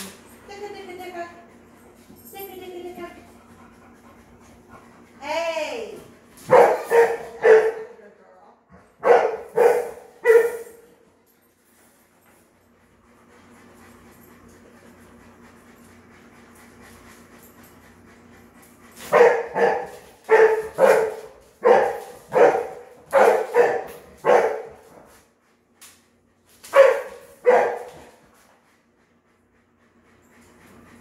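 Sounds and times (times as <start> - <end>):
dog barking: 6.5 - 7.9, 9.0 - 10.9, 19.1 - 24.8, 26.7 - 28.0.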